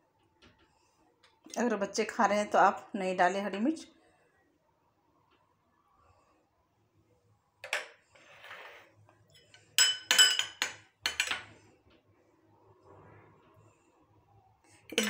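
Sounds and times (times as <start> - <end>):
spoons clinking on glass bowls: 9.3 - 11.5.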